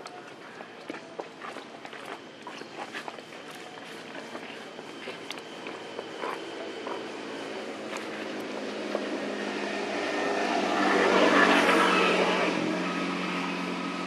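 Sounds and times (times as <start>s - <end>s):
engine passing by: 5.0s - 14.0s.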